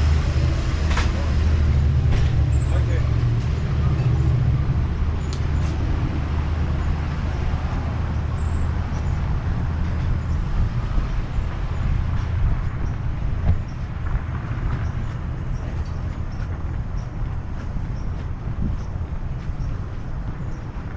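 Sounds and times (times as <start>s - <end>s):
vehicle rumble with hiss: 0.0s - 20.9s.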